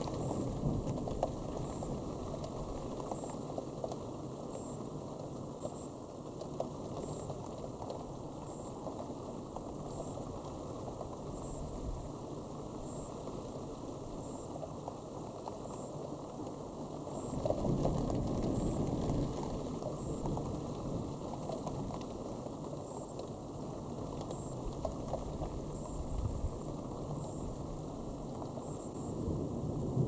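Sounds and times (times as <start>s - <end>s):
thunder rumbling: 25.2s - 30.0s.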